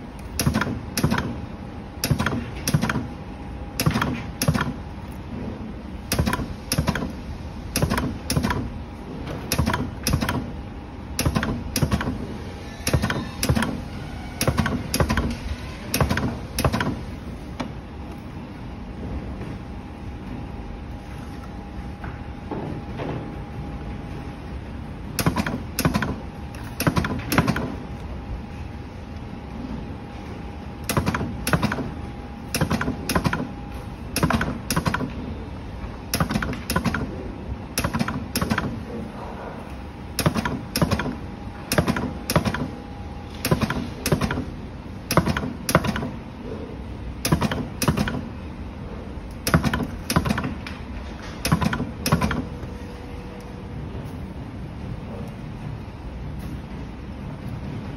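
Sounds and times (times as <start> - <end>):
spot welder snapping: 0.2 - 1.4, 2.0 - 3.2, 3.8 - 5.2, 6.1 - 8.8, 9.4 - 10.6, 11.2 - 12.2, 12.8 - 17.7, 25.2 - 28.1, 30.8 - 35.2, 36.1 - 37.1, 37.7 - 38.8, 40.1 - 46.2, 47.2 - 48.3, 49.3 - 52.6.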